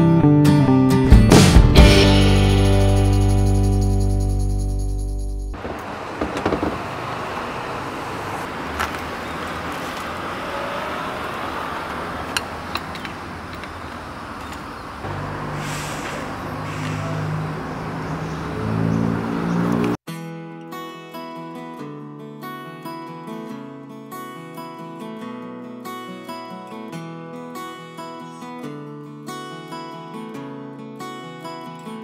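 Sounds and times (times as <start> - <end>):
traffic hum: 5.5 - 20.0
bicycle clicks and knocks: 12.3 - 14.7.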